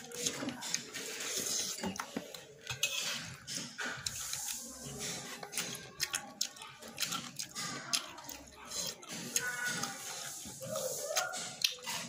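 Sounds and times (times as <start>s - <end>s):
wet eating sounds: 0.0s - 12.0s
metal spoon scraping plate: 0.2s - 5.8s.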